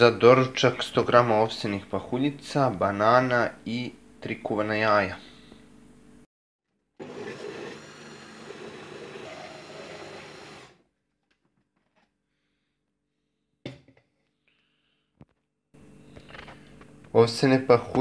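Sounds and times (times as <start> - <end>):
blender motor whining: 7.0 - 10.8.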